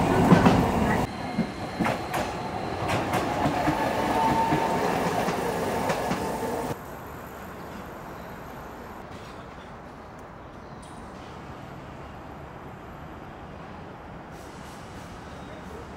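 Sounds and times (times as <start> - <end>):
tram rumbling on rails: 0.0 - 9.9.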